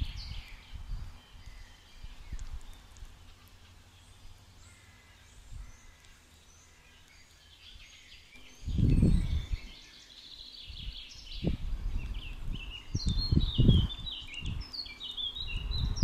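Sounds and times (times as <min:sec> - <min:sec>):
small songbirds chirping: 0:00.0 - 0:16.0.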